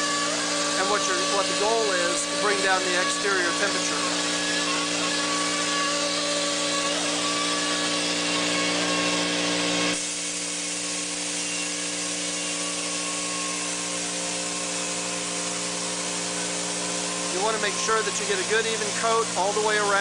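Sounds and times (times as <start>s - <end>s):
machine hum: 0.0s - 20.0s.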